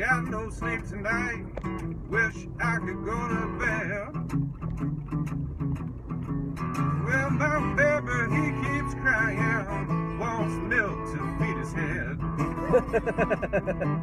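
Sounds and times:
man singing: 0.0 - 1.5, 2.1 - 4.2, 7.0 - 12.2
acoustic guitar blues: 0.0 - 14.0.

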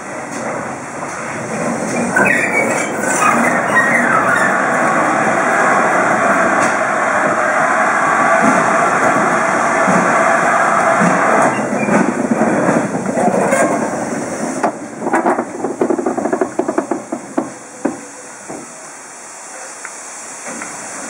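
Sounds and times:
loud hiss of steam: 0.0 - 13.1, 13.7 - 21.0
locomotive wheels clanking: 0.2 - 7.3, 8.1 - 18.9.

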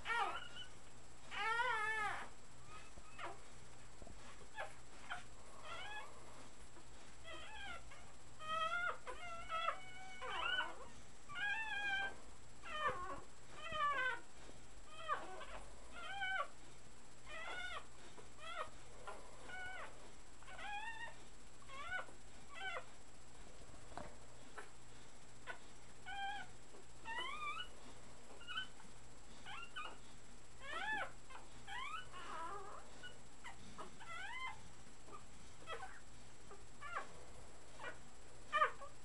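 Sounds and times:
puppies crying: 0.0 - 3.4.

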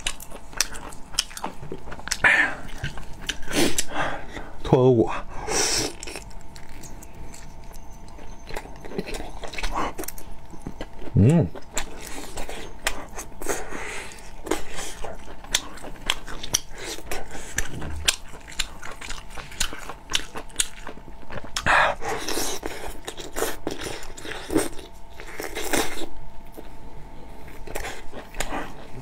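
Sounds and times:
close-miked chewing and biting: 0.0 - 4.6, 5.2 - 26.7, 27.4 - 29.0.

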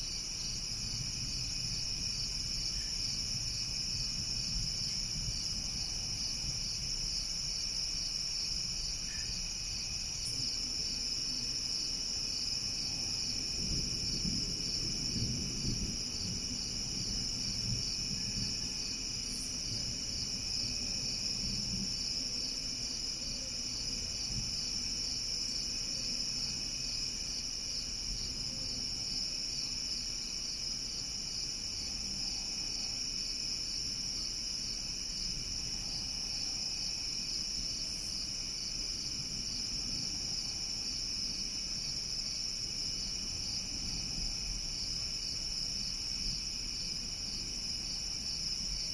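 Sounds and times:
crickets trilling: 0.0 - 48.9
distant thunder rumble: 12.9 - 22.1.

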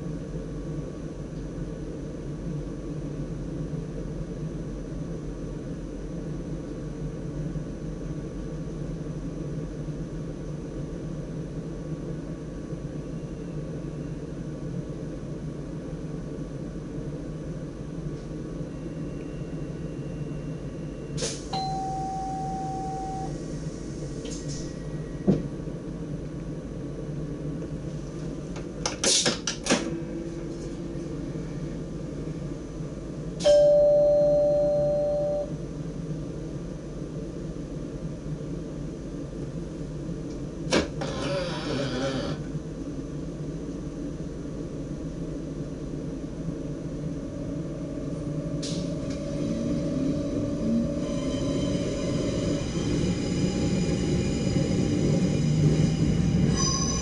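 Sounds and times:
train equipment hum: 0.0 - 57.0
short held beep: 21.5 - 23.3, 33.4 - 35.5.

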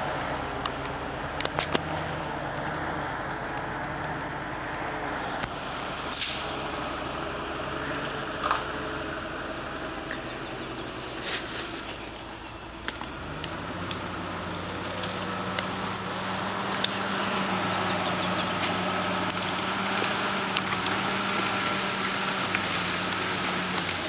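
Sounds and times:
vehicle engine running: 0.0 - 24.0
sharp cracks and knocks: 0.6 - 4.8, 12.8 - 17.6, 18.4 - 24.0.

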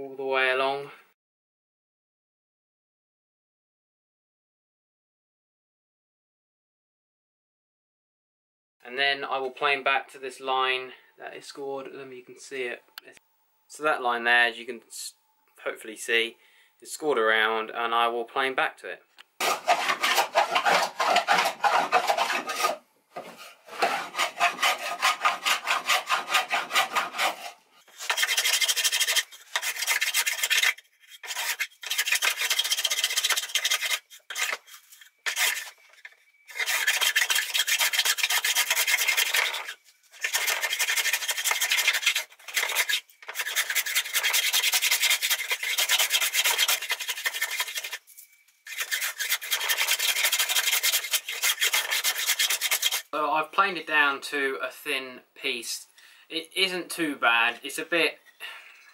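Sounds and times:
hand plane shaving wood: 19.4 - 48.0, 48.7 - 53.1.

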